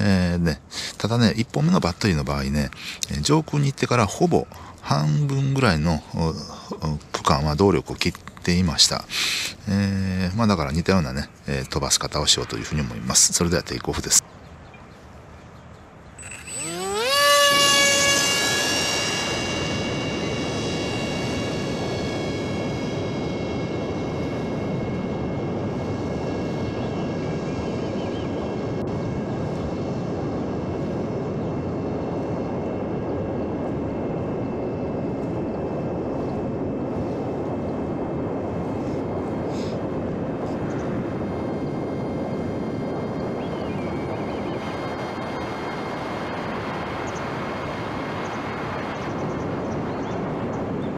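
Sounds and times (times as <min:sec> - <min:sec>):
rush of air: 0:09.0 - 0:10.0, 0:35.4 - 0:50.9
electric motor whine: 0:16.2 - 0:30.0, 0:38.7 - 0:50.9.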